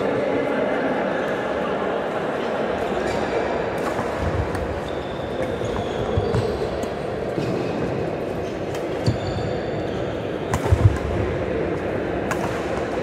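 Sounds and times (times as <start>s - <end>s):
echoing hall noise: 0.0s - 13.0s
shoe squeaks on floor: 4.8s - 6.8s, 8.4s - 10.2s
racket hitting shuttlecock: 10.5s - 11.2s, 12.2s - 13.0s.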